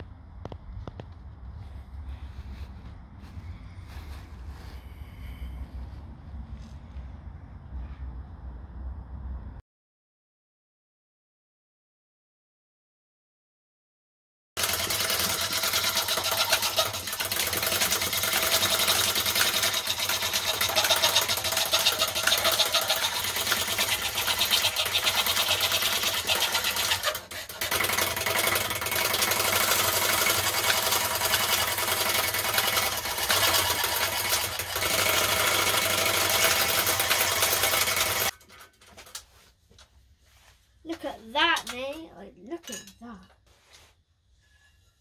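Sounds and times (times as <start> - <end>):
fret saw blade chattering: 14.6 - 38.4.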